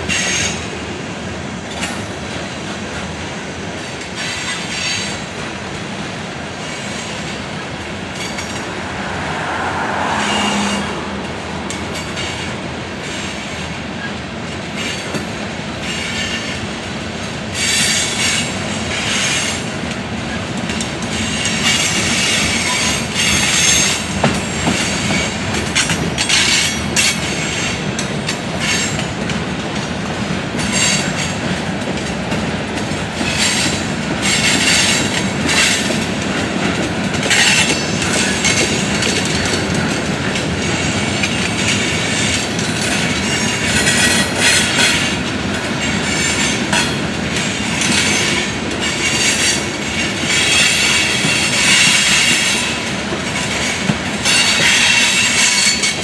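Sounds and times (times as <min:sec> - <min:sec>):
train wheels rumbling on rail: 0:00.0 - 0:56.0
high wheel squeal: 0:06.6 - 0:14.1, 0:54.2 - 0:56.0.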